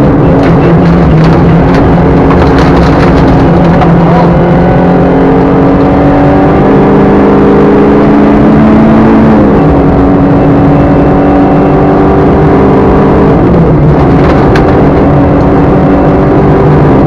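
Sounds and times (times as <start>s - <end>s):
rally car engine under load: 0.0s - 17.0s
gravel clattering on car underside: 0.3s - 4.3s, 14.0s - 15.0s.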